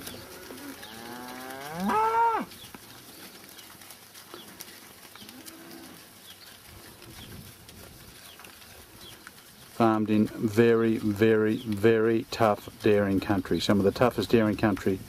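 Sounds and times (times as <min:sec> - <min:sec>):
cow mooing: 0:00.1 - 0:02.5, 0:05.3 - 0:06.0.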